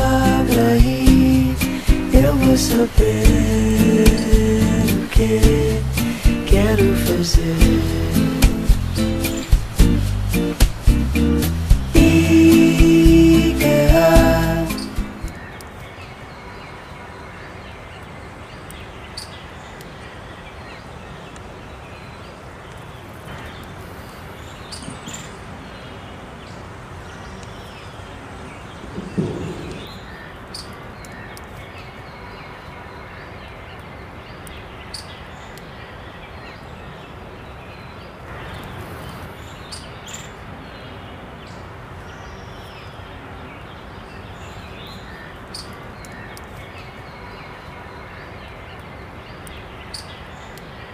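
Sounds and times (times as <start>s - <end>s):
steady background noise: 0.0s - 50.9s
low thump: 29.0s - 30.0s.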